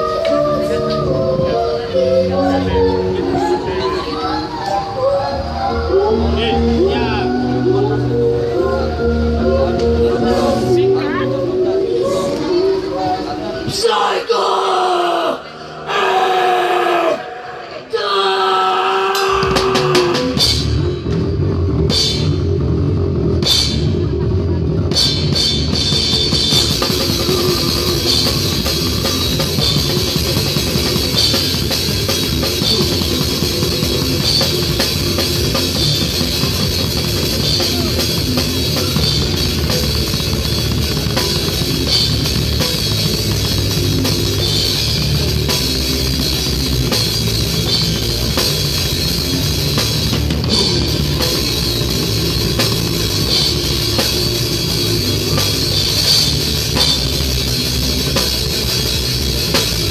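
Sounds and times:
heavy metal band playing: 5.4s - 12.4s, 13.6s - 59.9s
drumming: 19.1s - 24.2s, 24.8s - 59.9s.

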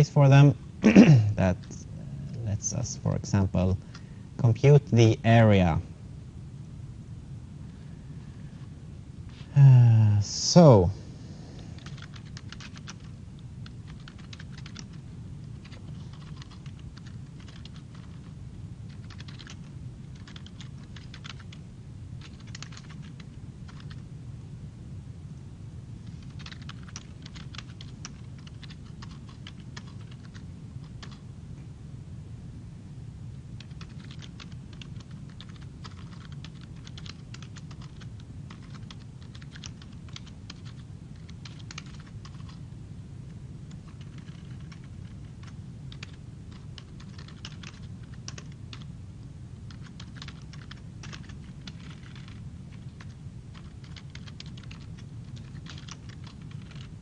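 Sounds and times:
steady low hum: 0.0s - 57.0s
computer keyboard typing: 11.8s - 21.6s, 22.2s - 24.0s, 26.0s - 31.2s, 33.6s - 42.6s, 43.7s - 48.9s, 49.7s - 57.0s.

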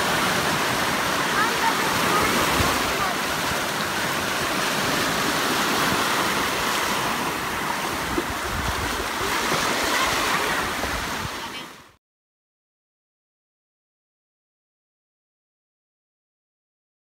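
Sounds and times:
small waves breaking on shore: 0.0s - 12.0s
wind rumble on microphone: 7.9s - 9.8s.

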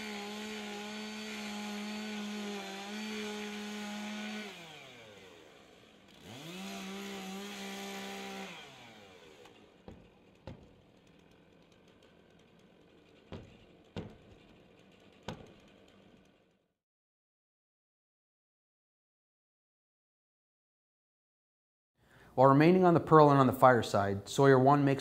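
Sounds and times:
chainsaw engine revving: 0.0s - 16.5s
sharp knocks: 9.8s - 10.8s, 13.2s - 14.6s, 15.2s - 15.8s.

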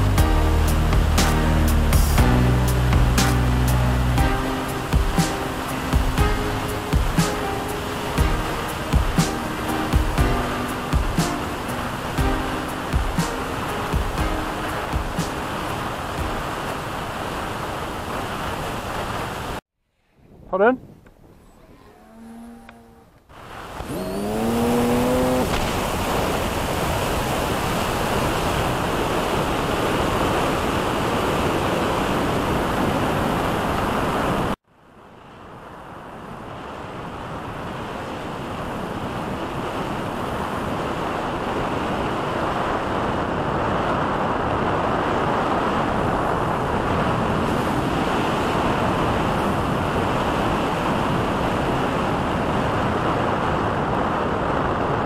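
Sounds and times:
short rising tones: 21.3s - 25.7s.

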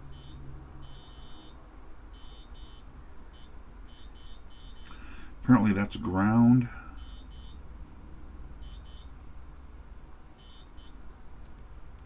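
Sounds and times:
multimeter continuity beeps: 0.1s - 5.0s, 7.0s - 7.6s, 8.6s - 9.1s, 10.4s - 11.0s.

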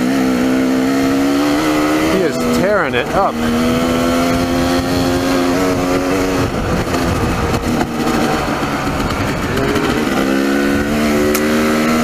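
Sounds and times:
dirt bike engine under throttle: 0.0s - 12.0s
wind rumble on microphone: 1.4s - 12.0s.

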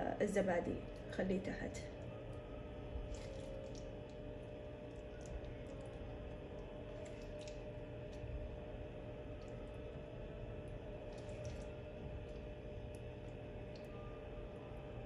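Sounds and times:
steady low hum: 0.0s - 15.0s
soft squelches of food: 1.9s - 8.6s, 9.3s - 14.0s.

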